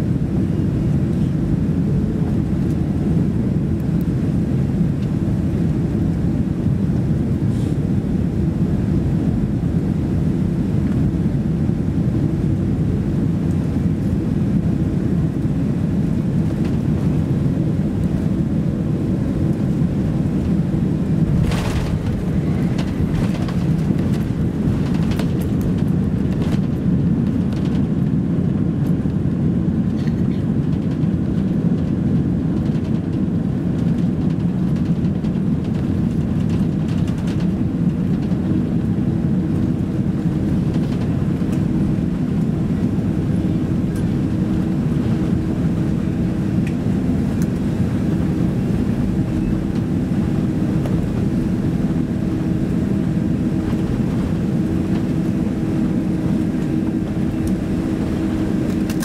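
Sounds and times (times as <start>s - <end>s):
airliner cabin rumble: 0.0s - 59.0s.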